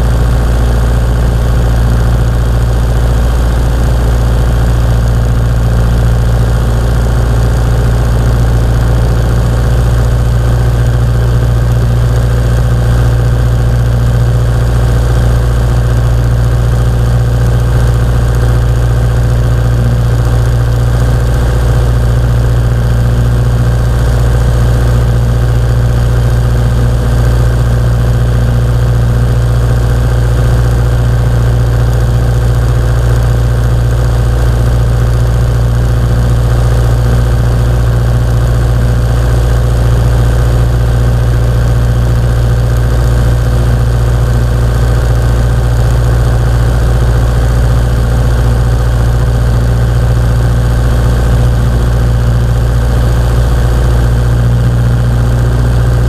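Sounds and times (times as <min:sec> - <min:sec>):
airplane engine drone in cabin: 0:00.0 - 0:56.0.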